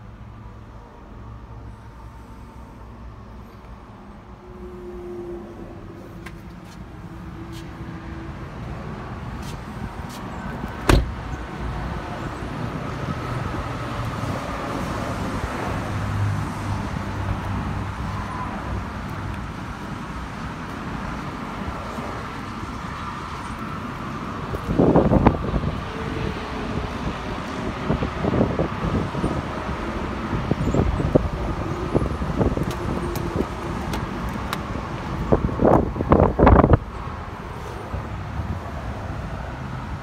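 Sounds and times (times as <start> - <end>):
steady traffic noise: 0.0 - 40.0
car door shutting: 9.4 - 11.3.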